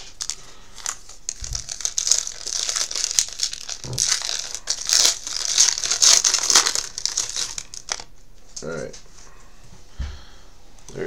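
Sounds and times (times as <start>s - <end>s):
wrapper crinkling and tearing: 0.0s - 8.1s.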